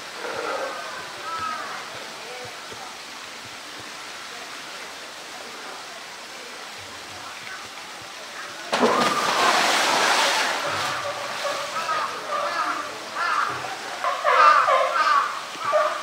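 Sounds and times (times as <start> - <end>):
running water rushing: 0.0 - 16.0
bear splashing into pool: 8.6 - 12.1.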